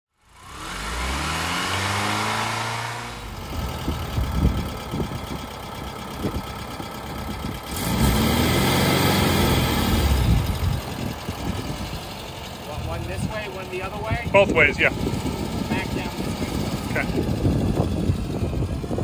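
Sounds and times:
revving engine sound effect: 0.2 - 5.1, 7.6 - 19.0
car engine idling with thumps: 3.2 - 8.0, 9.5 - 14.7.

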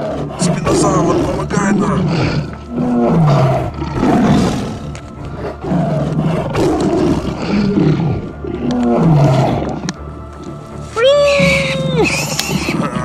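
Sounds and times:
big cat growling roars: 0.0 - 10.0.

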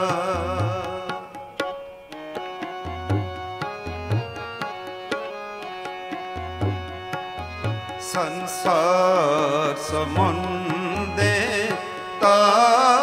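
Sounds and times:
sustained harmonium chords: 0.0 - 13.0
tabla rhythm: 0.0 - 13.0.

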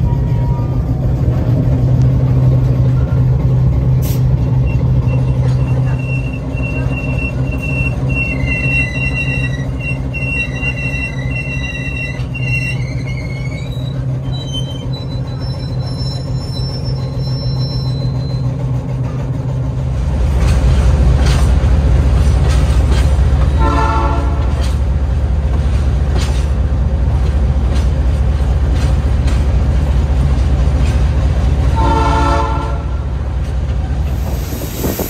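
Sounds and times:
diesel locomotive rumble: 0.0 - 35.0
train wheels squealing on rail: 2.3 - 19.1, 33.7 - 35.0.

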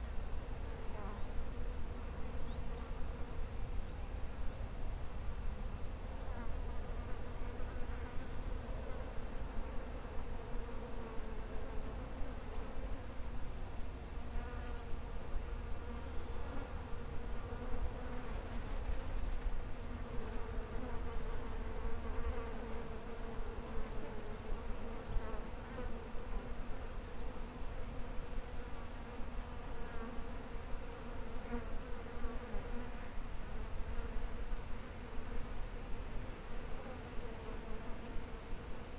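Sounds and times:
flying insect buzzing: 14.3 - 38.9.

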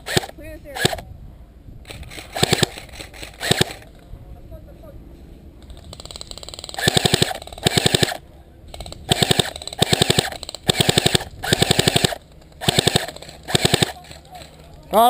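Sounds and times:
airsoft gun full-auto bursts: 0.0 - 1.0, 1.9 - 3.9, 5.9 - 8.2, 8.8 - 14.5.

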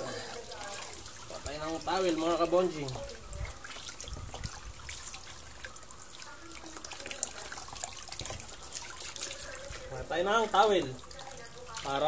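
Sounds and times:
water running from a hose: 0.0 - 12.0
water splashing into a basin: 0.0 - 12.0.

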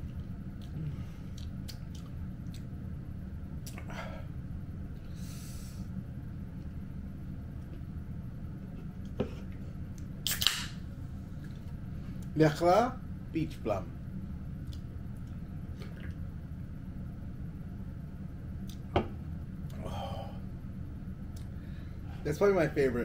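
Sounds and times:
steady low hum: 0.0 - 23.0
sharp click: 10.3 - 10.8.

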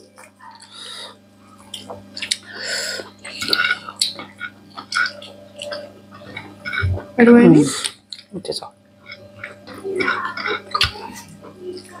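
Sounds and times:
faint steady hum: 0.0 - 12.0
wet chewing and mouth smacks: 3.2 - 7.0, 7.8 - 8.3.

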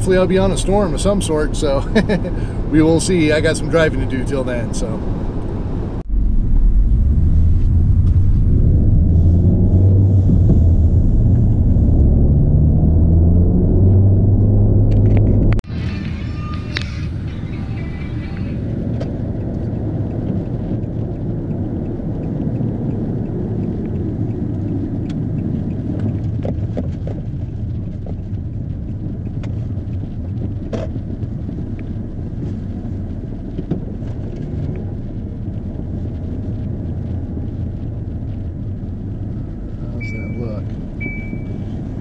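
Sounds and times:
car engine and road noise: 0.0 - 42.0
sharp ticks: 18.3 - 30.6.

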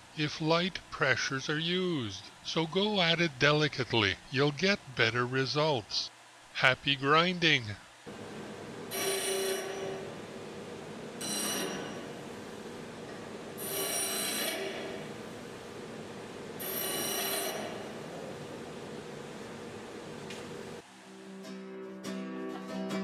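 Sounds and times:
bench grinder running: 8.1 - 15.3
metal grinding hiss and whine: 8.1 - 20.8.

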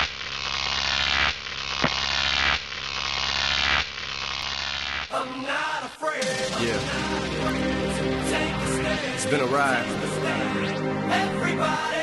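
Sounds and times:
electronic buzzing noise: 0.0 - 5.1
music with pitched notes: 6.2 - 12.0.

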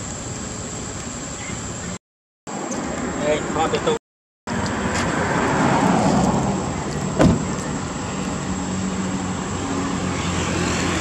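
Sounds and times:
passing motor vehicle: 2.5 - 11.0.

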